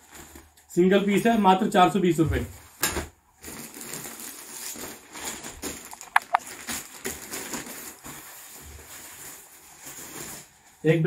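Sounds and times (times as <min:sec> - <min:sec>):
jackets and hangers rustling: 0:02.3 - 0:10.8.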